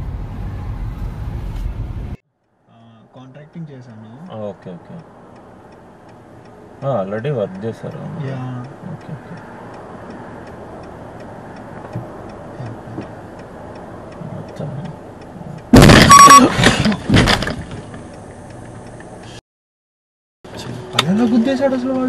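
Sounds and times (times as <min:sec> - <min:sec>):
light regular ticking: 0:02.4 - 0:15.8, 0:17.9 - 0:19.4
car collision crash: 0:15.7 - 0:18.0.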